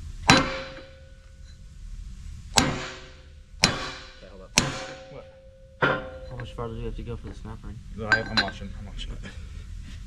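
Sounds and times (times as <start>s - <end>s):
sledgehammer striking metal: 0.2s - 1.2s, 2.5s - 6.6s.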